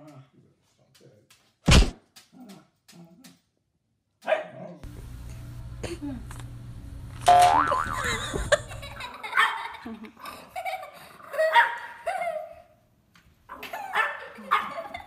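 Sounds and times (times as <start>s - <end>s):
puppy yelping barks: 4.2s - 4.8s.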